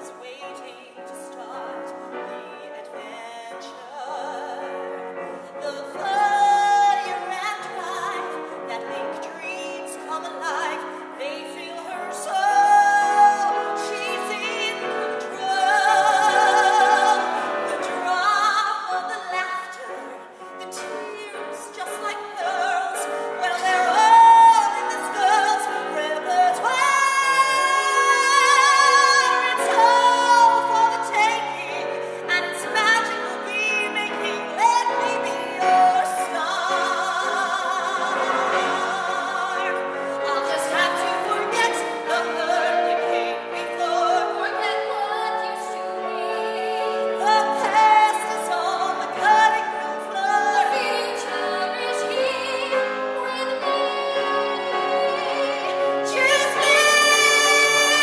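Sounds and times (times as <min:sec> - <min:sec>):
woman singing a ballad: 0:00.0 - 0:58.0.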